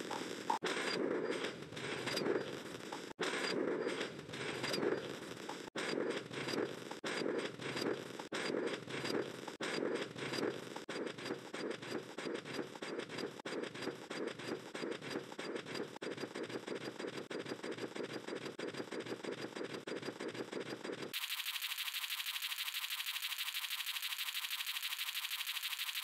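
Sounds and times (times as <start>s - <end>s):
thin fast high buzz: 21.2s - 26.0s.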